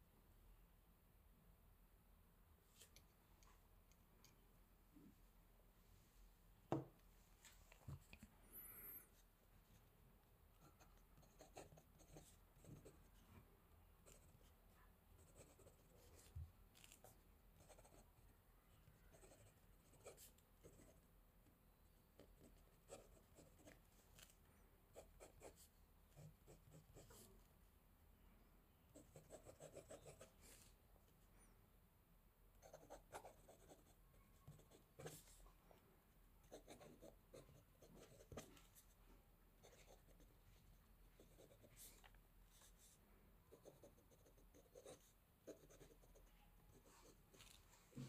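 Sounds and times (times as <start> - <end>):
pen scratching on paper: 10.6 - 13.1, 15.2 - 18.2, 19.0 - 21.0, 22.2 - 24.3, 29.0 - 30.7, 32.6 - 35.4, 36.5 - 38.7, 41.2 - 42.0, 43.5 - 47.6.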